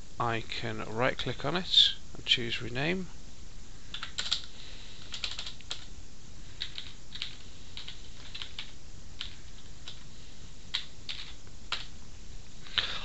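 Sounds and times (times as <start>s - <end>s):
typing on computer keyboard: 3.9s - 5.9s, 6.6s - 10.0s, 10.7s - 11.9s.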